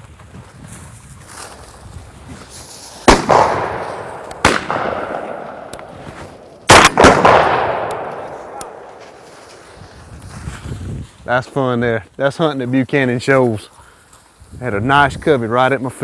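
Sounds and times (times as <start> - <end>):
shotgun shots echoing: 3.0 - 9.3.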